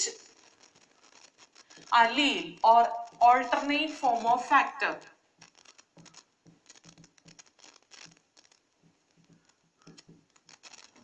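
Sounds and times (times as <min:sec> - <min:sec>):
marker writing on whiteboard: 0:05.4 - 0:07.6, 0:08.2 - 0:11.0.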